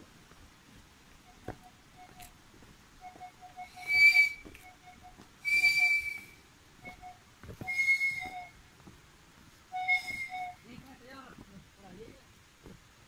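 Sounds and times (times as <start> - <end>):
high whistles: 3.0 - 8.6, 9.7 - 10.7.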